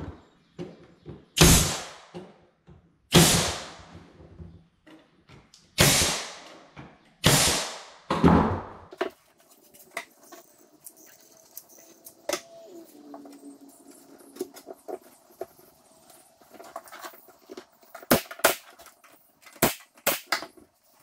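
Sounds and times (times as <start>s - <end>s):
nail gun firing: 1.4s - 2.1s, 3.1s - 3.9s, 5.8s - 6.6s, 7.2s - 8.7s, 18.1s - 18.8s, 19.6s - 20.5s.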